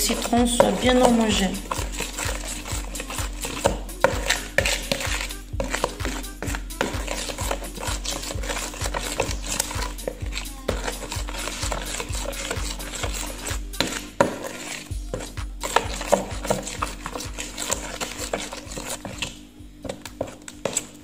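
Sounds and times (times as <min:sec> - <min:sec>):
spoon stirring in a bowl: 0:00.0 - 0:21.0.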